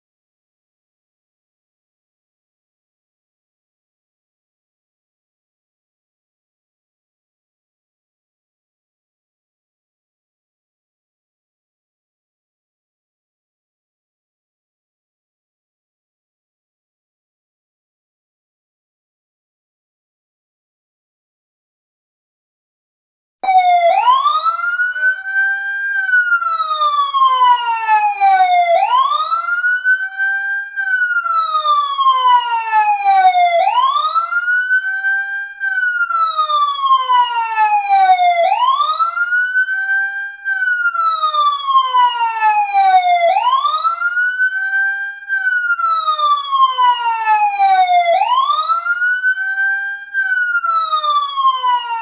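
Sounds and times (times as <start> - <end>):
fire truck siren wailing: 23.4 - 52.0.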